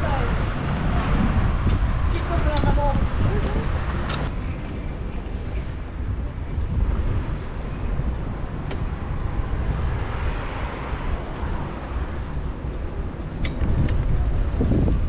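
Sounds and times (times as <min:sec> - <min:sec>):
city traffic hiss: 0:00.0 - 0:13.4
wind rumbling on microphone: 0:00.0 - 0:15.0.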